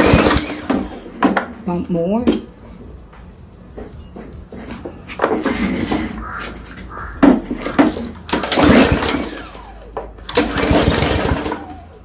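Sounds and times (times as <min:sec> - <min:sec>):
engine turning over: 0:00.0 - 0:01.3, 0:07.4 - 0:12.0.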